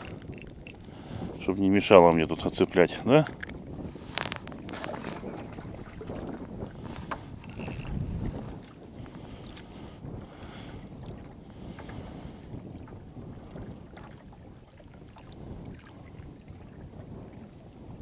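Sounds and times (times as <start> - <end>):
wind rumbling on microphone: 0.0 - 18.0
small waves lapping on rocks: 2.8 - 7.3.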